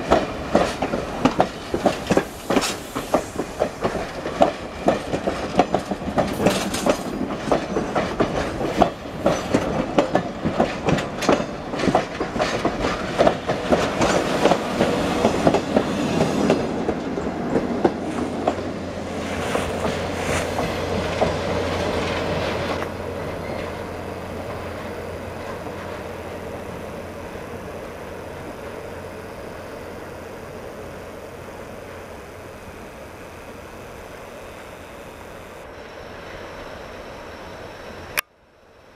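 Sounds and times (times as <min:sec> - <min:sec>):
train wheels clattering: 0:00.0 - 0:27.4
train rumble: 0:00.0 - 0:38.9.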